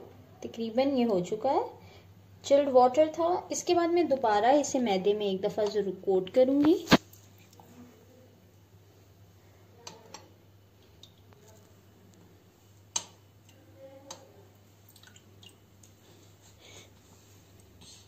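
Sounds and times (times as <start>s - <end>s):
faint steady hum: 0.0s - 18.0s.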